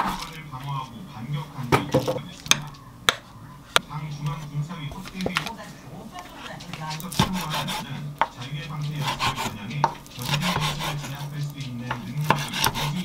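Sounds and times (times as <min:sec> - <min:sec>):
knife slicing raw meat: 0:00.0 - 0:00.4, 0:06.8 - 0:13.0.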